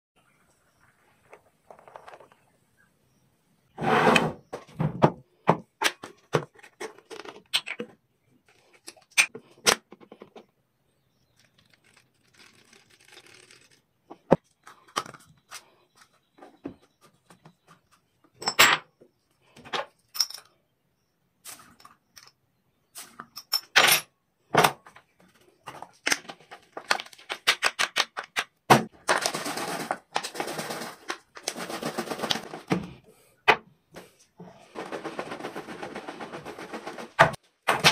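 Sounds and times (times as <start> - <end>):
rapid rattling: 34.6 - 37.4.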